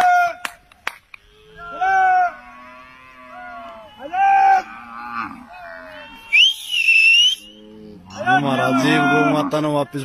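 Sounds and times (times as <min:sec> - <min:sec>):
man calling cows: 0:03.3 - 0:06.5, 0:08.0 - 0:10.0
piercing whistle: 0:06.2 - 0:07.6.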